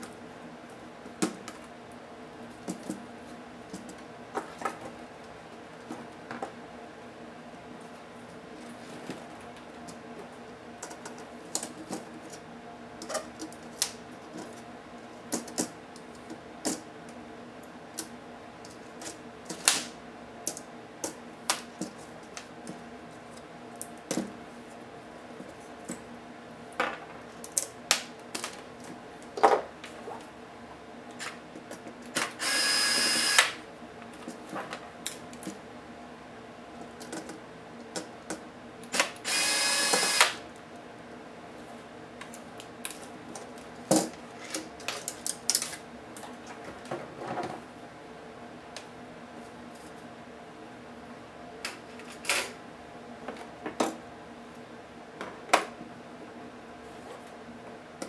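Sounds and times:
cordless electric screwdriver whine: 32.4s - 33.6s, 39.0s - 40.4s.

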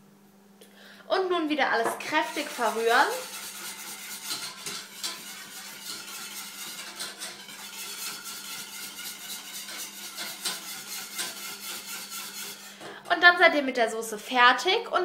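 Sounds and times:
whisk scraping steel saucepan: 1.8s - 13.0s.

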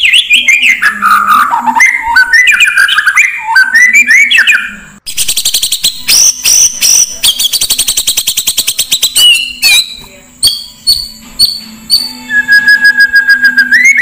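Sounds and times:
recorded songbird whistled phrases: 0.0s - 14.0s
rapid short high bird notes: 4.3s - 14.0s.

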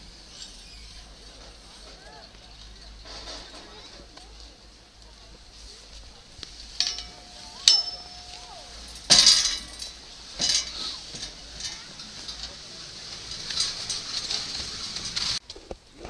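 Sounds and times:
chairlift metallic clinks: 6.4s - 15.4s
skis scraping on snow: 10.1s - 15.4s.

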